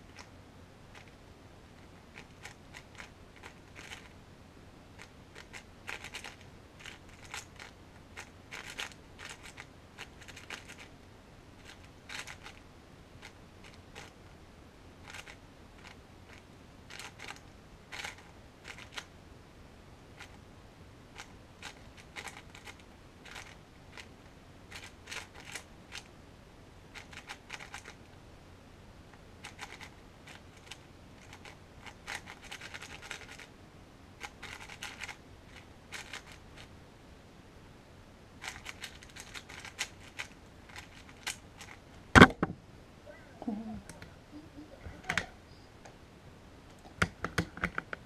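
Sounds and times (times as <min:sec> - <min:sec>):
puzzle cube clicking and rattling: 0:00.9 - 0:01.1, 0:01.8 - 0:04.1, 0:05.0 - 0:10.9, 0:11.6 - 0:12.6, 0:13.2 - 0:14.2, 0:15.0 - 0:19.1, 0:20.2 - 0:20.4, 0:21.2 - 0:24.1, 0:24.7 - 0:26.1, 0:26.9 - 0:28.0, 0:29.4 - 0:33.5, 0:34.2 - 0:36.7, 0:38.4 - 0:41.8.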